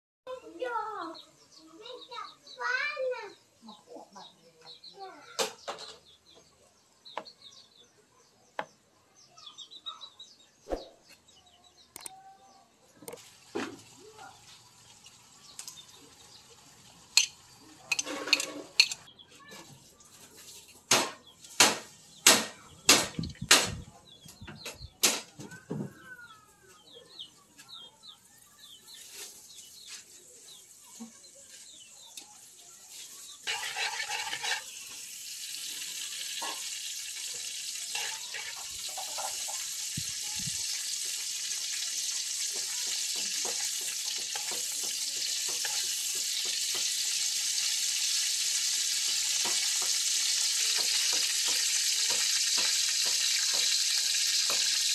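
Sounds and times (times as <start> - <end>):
oil sizzling in a wok: 13.2 - 19.1, 28.4 - 54.9
spoon clinking on metal: 17.2 - 19.0.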